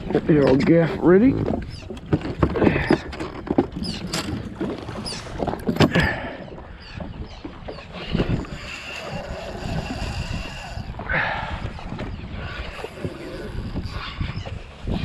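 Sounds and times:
waves slapping jet ski hull: 0.0s - 15.0s
wind on microphone: 0.0s - 15.0s.

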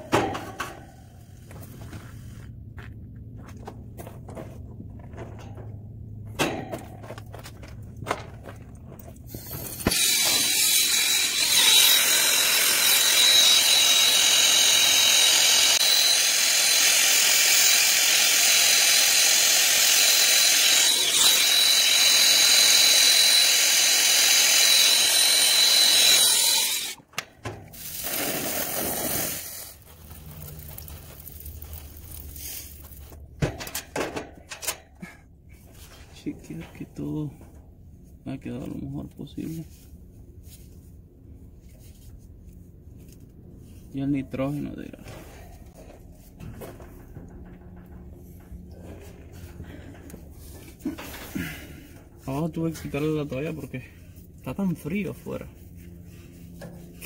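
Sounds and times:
brazing torch flame hissing: 27.8s - 29.9s.

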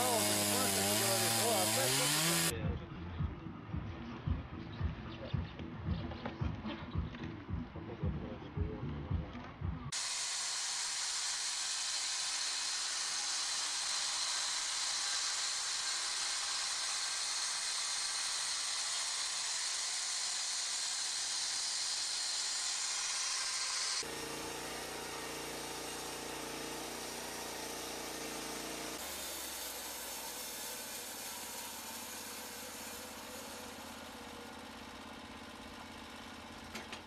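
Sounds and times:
saw blade hissing: 0.0s - 2.5s, 9.9s - 34.7s.

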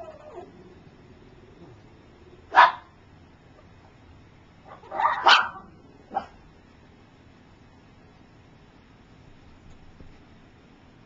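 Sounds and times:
dog barking: 2.5s - 2.9s, 4.7s - 6.4s.

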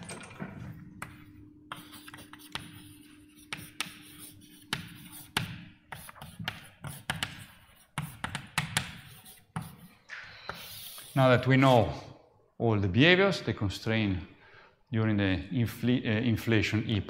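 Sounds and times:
chalk tapping and scratching on board: 1.0s - 11.4s.

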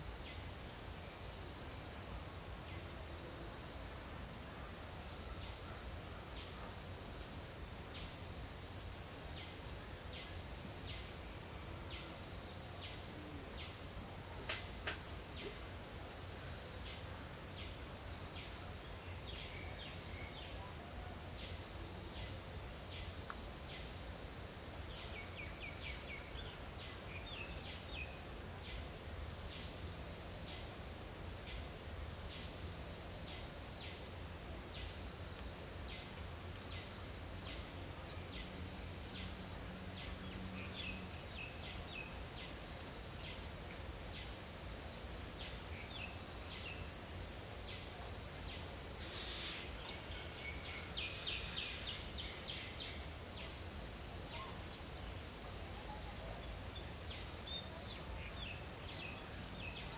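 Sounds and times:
high-pitched insect drone: 49.0s - 55.2s.

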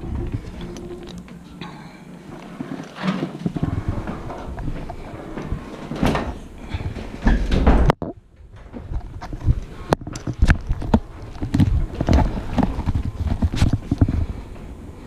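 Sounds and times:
heavy low rumble: 0.0s - 15.0s.

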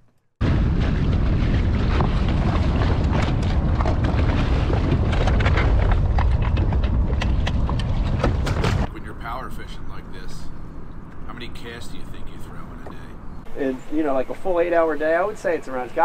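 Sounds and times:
wind buffeting microphone: 0.4s - 8.9s.

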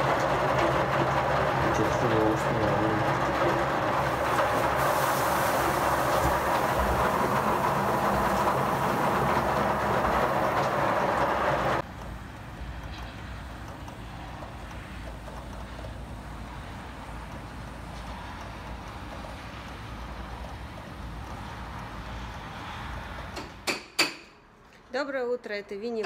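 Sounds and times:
even rushing noise: 0.0s - 11.8s
heavy rain: 0.0s - 11.8s.

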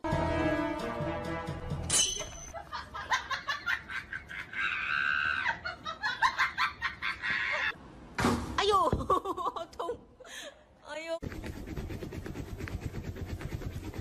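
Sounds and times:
person laughing: 2.5s - 7.8s, 9.0s - 10.4s.

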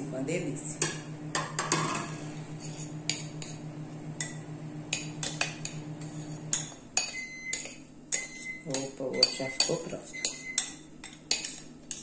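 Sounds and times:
microwave oven humming: 0.0s - 11.0s
glass bowl clinking and scraping: 1.6s - 3.6s, 5.0s - 12.0s
microwave beep: 7.0s - 10.8s.

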